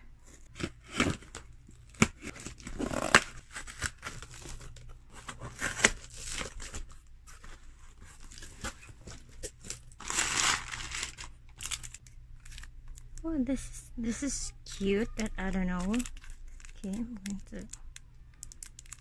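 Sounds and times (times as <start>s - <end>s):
tape tearing: 0.5s - 12.6s.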